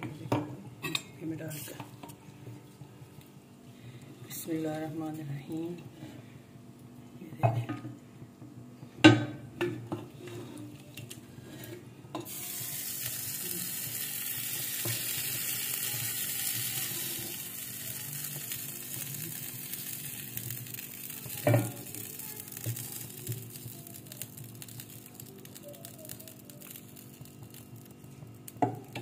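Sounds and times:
steady hiss: 12.2 - 28.9.

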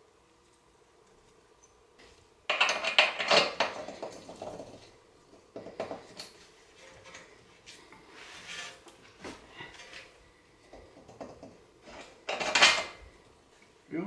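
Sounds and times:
metal tools clinking and clattering: 11.9 - 13.0.

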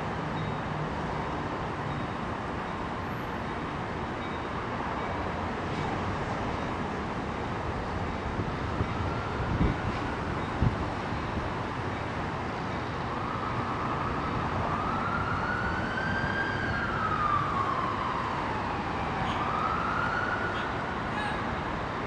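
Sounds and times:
siren wailing: 13.1 - 20.9.

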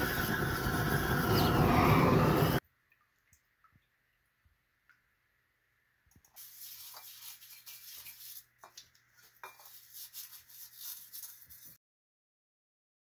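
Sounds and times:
brush scrubbing wet copper cup: 6.4 - 11.8.

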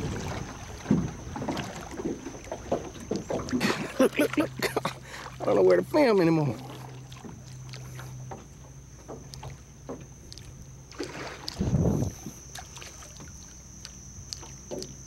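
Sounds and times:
deep rush of water or wind: 0.0 - 1.8, 11.0 - 12.3
steady low hum: 0.0 - 15.0
water slapping and splashing: 0.0 - 15.0.

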